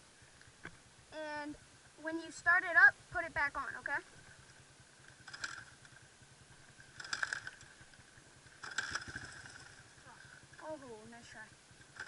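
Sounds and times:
dirt bike engine cranking: 0:05.0 - 0:10.6, 0:11.7 - 0:12.0.

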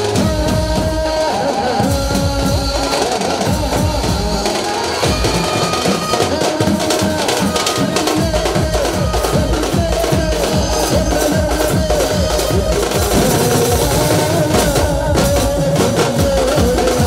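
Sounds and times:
bass drums and side drum: 0:00.0 - 0:17.0
clarinet melody: 0:04.7 - 0:06.6.

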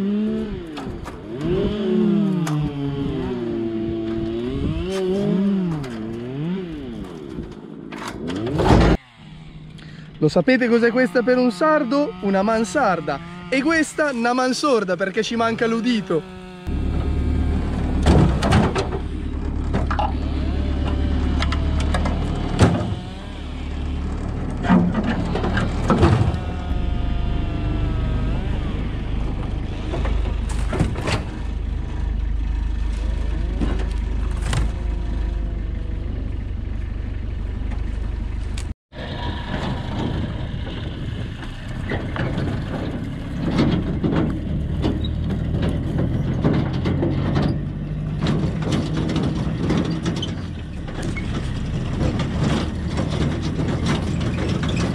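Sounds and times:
rough engine drone: 0:00.0 - 0:54.9
vehicle engine droning: 0:00.0 - 0:54.9
vine canes cracking and scraping: 0:29.2 - 0:31.5, 0:32.8 - 0:35.1.

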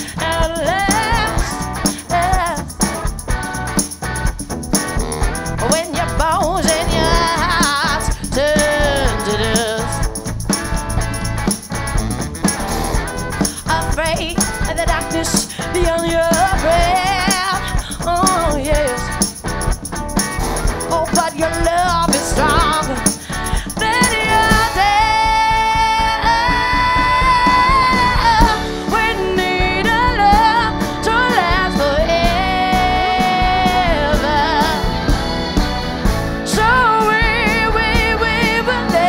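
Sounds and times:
drums: 0:00.0 - 0:39.0
electric guitar: 0:00.0 - 0:39.0
saxophone: 0:04.8 - 0:05.9, 0:06.6 - 0:08.0, 0:22.1 - 0:23.2, 0:23.8 - 0:25.4
person singing: 0:06.6 - 0:09.9, 0:21.1 - 0:25.7.

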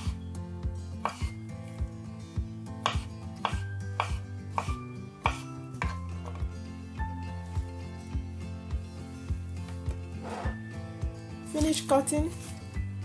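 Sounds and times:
knife chopping on wooden board: 0:01.0 - 0:01.3, 0:02.8 - 0:06.4.

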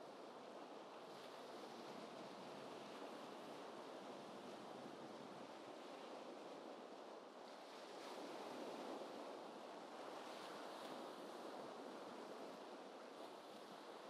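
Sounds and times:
gentle ocean waves: 0:00.0 - 0:14.0.

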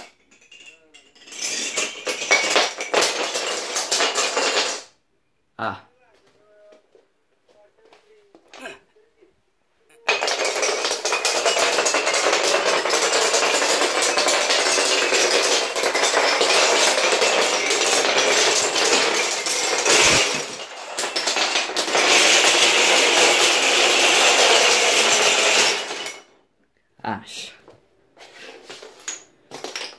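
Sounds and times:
plank tower collapsing: 0:10.0 - 0:26.3
wooden planks clattering: 0:10.1 - 0:26.2.

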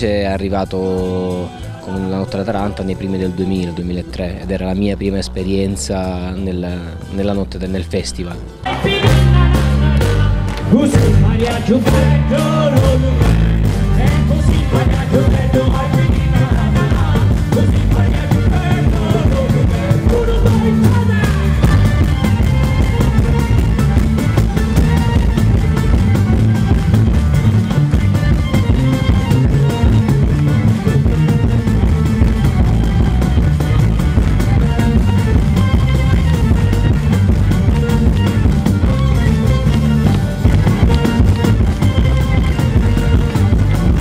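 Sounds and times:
live folk band playing: 0:00.0 - 0:44.0.

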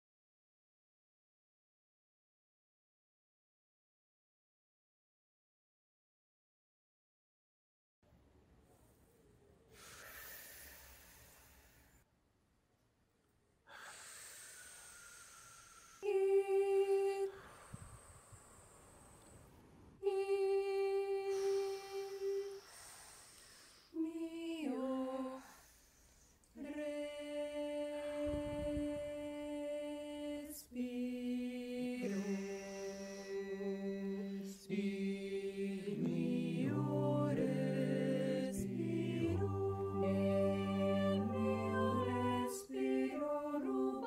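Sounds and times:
a cappella choir singing: 0:15.3 - 0:17.6, 0:20.0 - 0:23.2, 0:23.9 - 0:25.9, 0:26.5 - 0:44.0.

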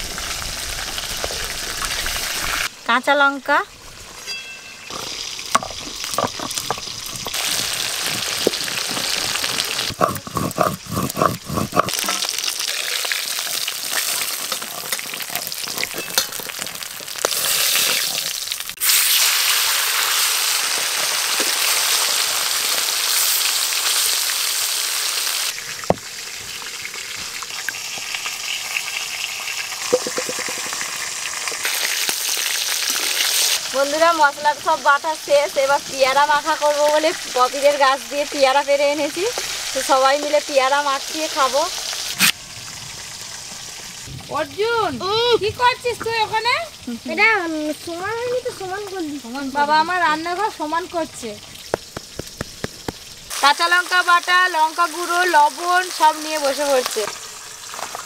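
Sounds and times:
fish sizzling in oil: 0:00.0 - 0:58.0
stone grinding on grinding stone: 0:04.3 - 0:12.3.

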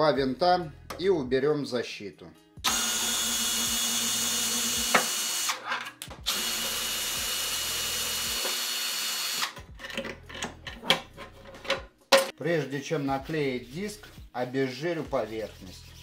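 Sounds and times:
cordless drill motor running: 0:02.7 - 0:05.6, 0:06.3 - 0:09.6.

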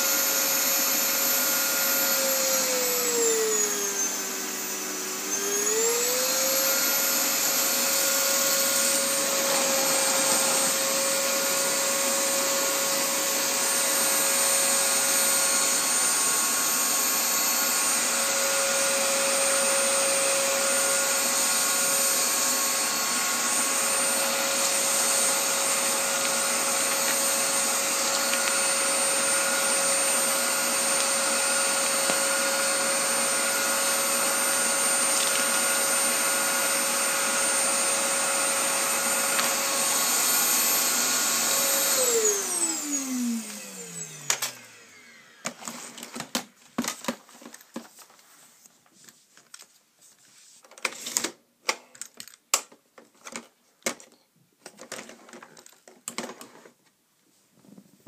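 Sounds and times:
vacuum cleaner running: 0:00.0 - 0:47.2.

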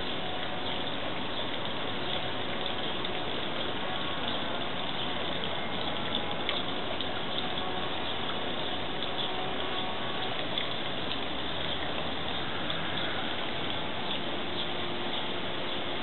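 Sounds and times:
fountain water running: 0:00.0 - 0:16.0.

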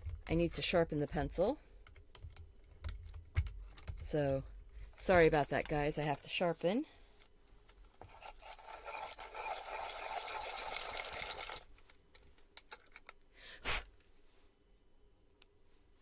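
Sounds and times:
pencil sharpener grinding: 0:08.0 - 0:11.7.

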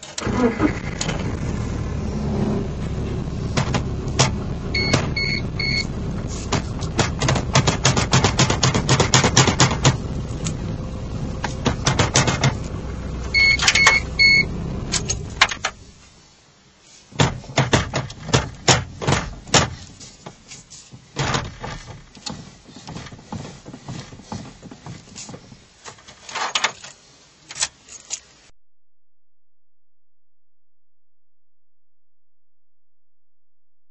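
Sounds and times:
steady low hum: 0:00.2 - 0:16.2
steering column knocks and clicks: 0:02.8 - 0:05.3, 0:06.4 - 0:10.6, 0:11.4 - 0:14.0, 0:17.2 - 0:26.7
short beeps: 0:04.8 - 0:05.9, 0:13.4 - 0:14.5.

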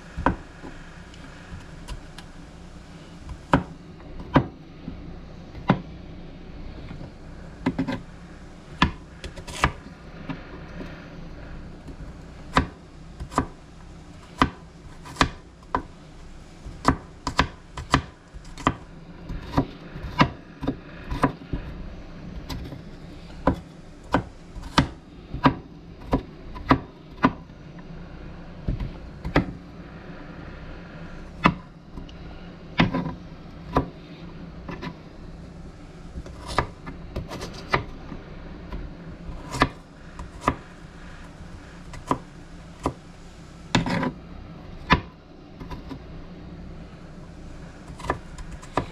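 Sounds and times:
knife chopping on cutting board: 0:00.2 - 0:00.8, 0:03.2 - 0:04.6, 0:07.6 - 0:08.0, 0:08.8 - 0:10.4, 0:11.9 - 0:13.6, 0:14.4 - 0:15.9, 0:16.7 - 0:21.7, 0:23.4 - 0:27.4, 0:28.7 - 0:29.6, 0:32.8 - 0:34.0, 0:36.2 - 0:37.9, 0:39.4 - 0:40.7, 0:42.0 - 0:43.0, 0:43.7 - 0:44.2, 0:44.8 - 0:46.0.

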